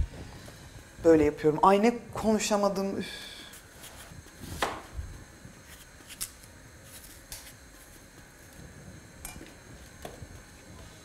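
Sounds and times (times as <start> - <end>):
knife cutting apple: 3.8 - 4.9.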